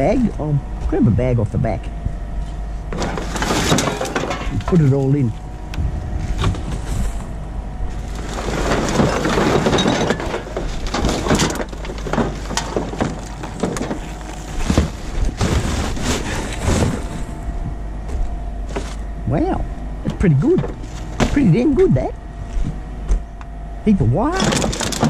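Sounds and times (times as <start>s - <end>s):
dense rustle: 2.4s - 19.1s
cardboard and plastic bottles handled: 8.0s - 17.3s, 24.3s - 25.0s.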